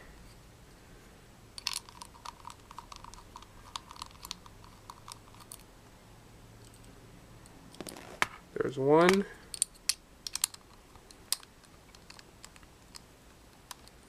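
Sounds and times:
screwdriver metal clicks: 9.1s - 10.6s.

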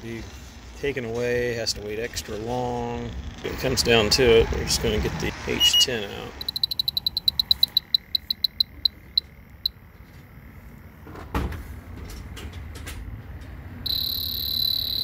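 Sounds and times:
continuous high-pitched tone: 5.5s - 10.7s, 13.8s - 15.0s
leak detector beeping: 5.6s - 9.8s, 13.8s - 15.0s.

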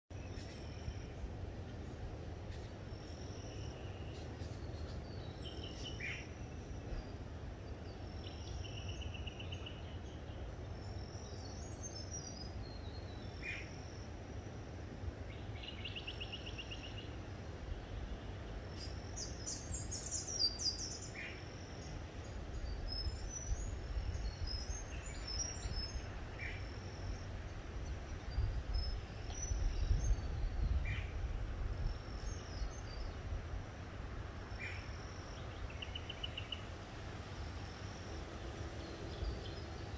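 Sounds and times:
birds chirping and trilling: 37.4s - 39.9s.

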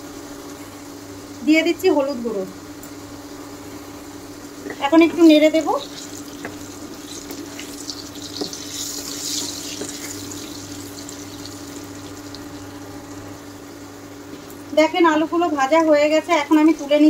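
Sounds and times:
potatoes sizzling in oil: 4.1s - 12.8s
low hum: 10.2s - 14.2s.

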